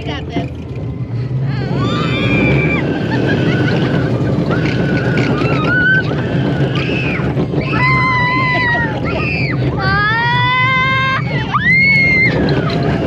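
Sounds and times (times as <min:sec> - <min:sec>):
roller coaster rumble: 0:00.0 - 0:13.0
wind on microphone: 0:01.4 - 0:13.0.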